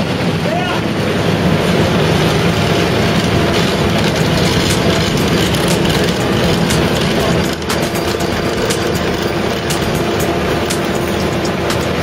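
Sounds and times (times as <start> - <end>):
asphalt paver engine: 0.0 - 12.0.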